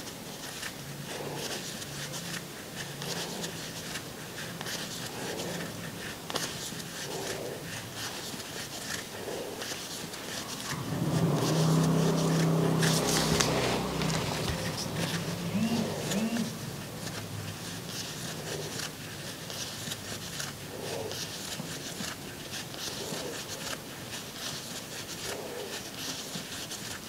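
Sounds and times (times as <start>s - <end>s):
crochet hook scratching yarn: 0.0s - 27.0s
low hum: 10.5s - 18.5s.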